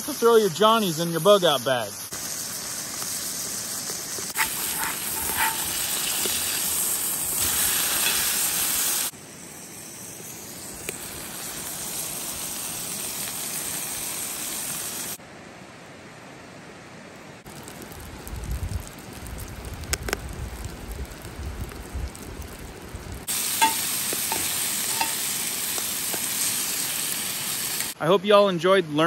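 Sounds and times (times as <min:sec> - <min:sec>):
fish sizzling in a skillet: 0:02.1 - 0:15.2, 0:17.5 - 0:28.0
sharp pops: 0:19.8 - 0:20.2.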